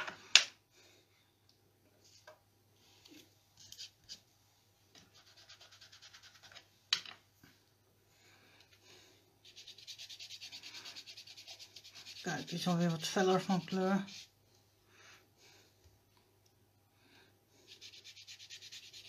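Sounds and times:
ink dauber scratching on paper: 5.1 - 6.6, 9.4 - 14.3, 17.7 - 19.0.

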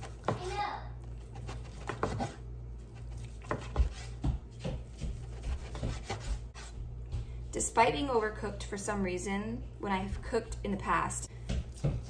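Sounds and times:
knife cutting on cutting board: 1.2 - 4.2, 5.1 - 6.8.

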